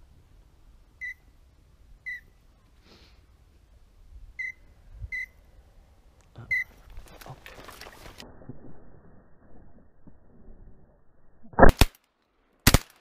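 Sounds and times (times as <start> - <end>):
whistled duck calls: 2.0 - 2.3, 4.4 - 5.4, 6.4 - 7.3.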